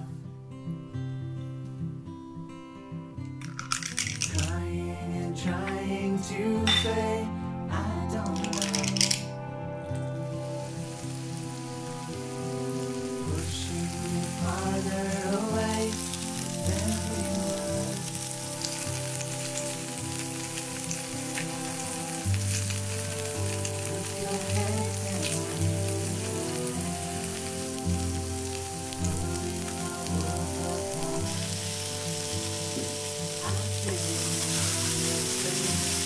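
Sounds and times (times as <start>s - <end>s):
background music with sustained notes: 0.0s - 36.0s
meat sizzling in oil: 10.2s - 36.0s.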